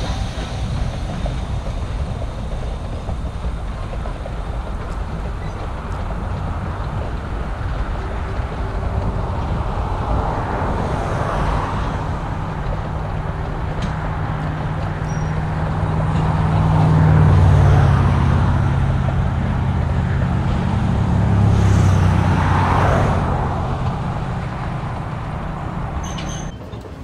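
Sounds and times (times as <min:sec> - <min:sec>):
train running: 0:00.0 - 0:27.0.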